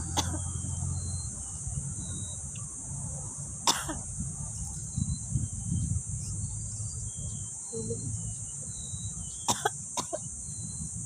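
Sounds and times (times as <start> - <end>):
high-pitched insect drone: 4.0 - 11.0.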